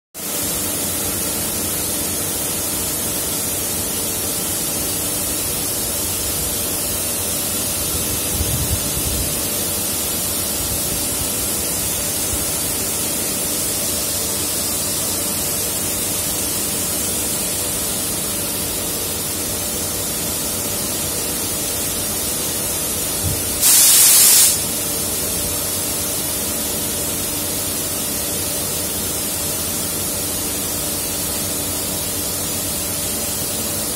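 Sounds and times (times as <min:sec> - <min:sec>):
water spray hissing: 0:23.6 - 0:24.7.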